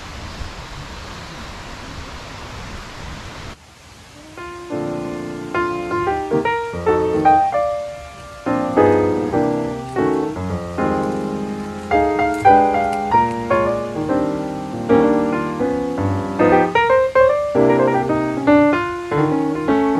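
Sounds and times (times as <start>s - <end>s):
background piano music: 4.2s - 19.9s.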